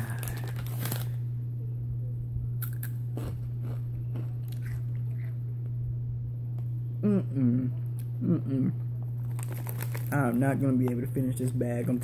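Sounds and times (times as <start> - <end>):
person crunching chips: 0.0 - 1.2, 2.6 - 5.4, 9.0 - 12.0
low electrical hum: 0.0 - 12.0.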